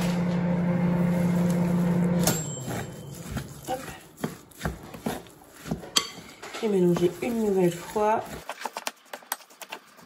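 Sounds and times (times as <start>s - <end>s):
appliance electrical hum: 0.0s - 8.5s
spatula scraping glass bowl: 1.2s - 8.6s.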